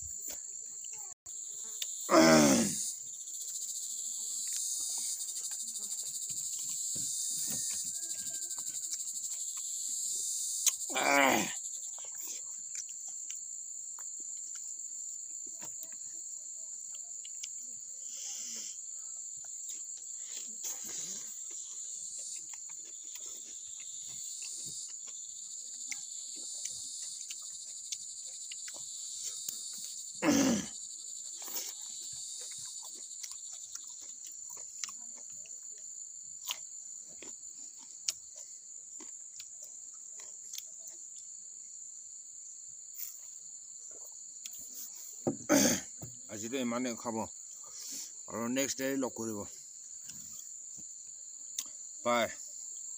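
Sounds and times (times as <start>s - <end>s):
insect chorus: 0.0s - 52.9s
short grunt: 2.1s - 2.9s, 10.9s - 11.6s, 30.2s - 30.8s, 45.3s - 46.0s
person eating clicks and smacks: 12.0s - 13.4s, 25.9s - 29.7s, 32.4s - 35.4s, 37.2s - 38.4s, 39.0s - 41.0s.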